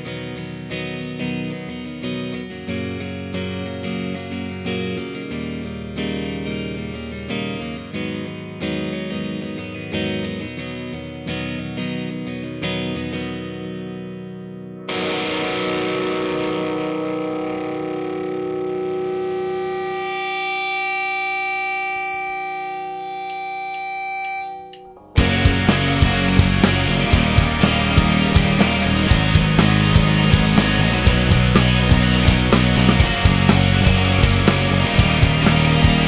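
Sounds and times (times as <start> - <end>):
guitar strumming chords: 0.0 - 36.0
distorted electric guitar chord: 14.8 - 36.0.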